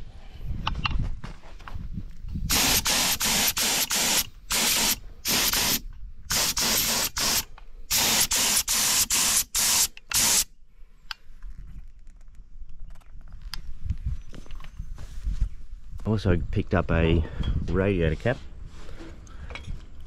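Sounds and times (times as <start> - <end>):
spray gun hissing bursts: 2.5 - 10.5.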